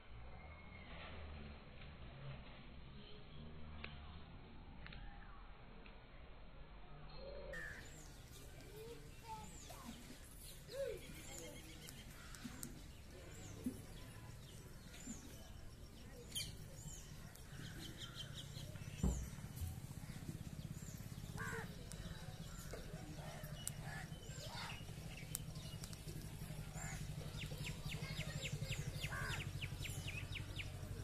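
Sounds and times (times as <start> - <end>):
small birds chirping: 7.6 - 31.0
thump: 19.0 - 19.4.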